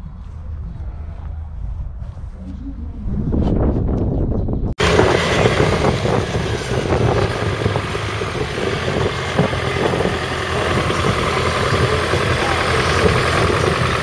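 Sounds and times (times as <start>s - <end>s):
tractor engine running: 4.8s - 14.0s.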